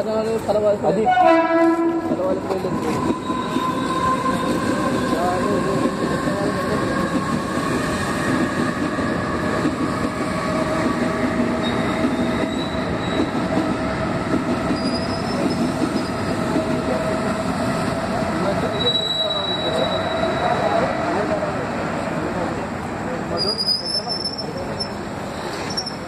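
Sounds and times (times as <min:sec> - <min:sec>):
wheels rumbling on rail: 0:00.0 - 0:26.0.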